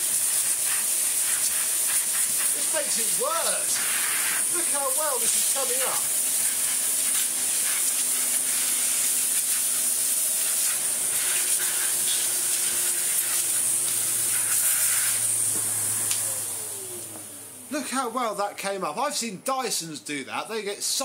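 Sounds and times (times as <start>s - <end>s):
vacuum cleaner whining: 0.0s - 18.3s
vacuum motor winding down: 2.4s - 17.8s.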